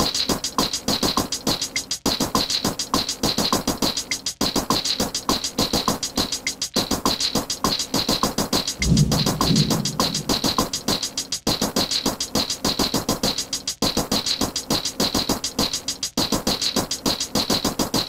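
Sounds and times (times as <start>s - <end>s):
electronic percussive beat: 8.7s - 11.1s.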